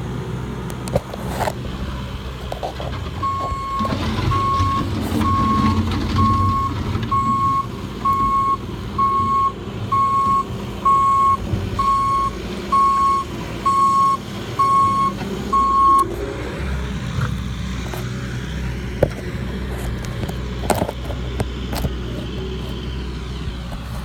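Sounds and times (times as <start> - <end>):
loader engine running: 0.0 - 24.0
reverse alarm beeping: 3.2 - 16.1.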